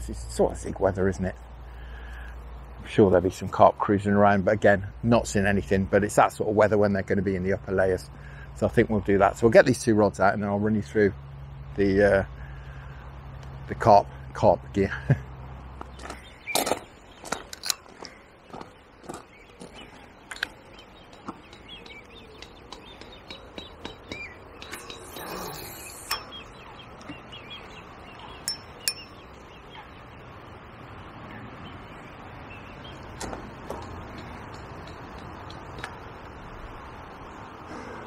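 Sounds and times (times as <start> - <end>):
footsteps crunching on gravel: 15.8 - 22.0.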